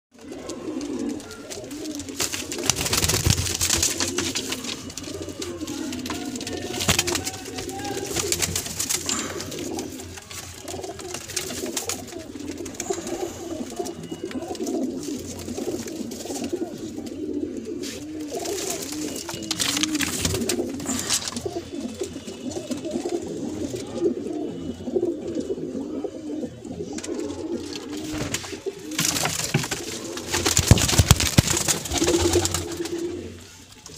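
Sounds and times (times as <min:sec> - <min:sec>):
pigeons cooing: 0:00.1 - 0:33.9.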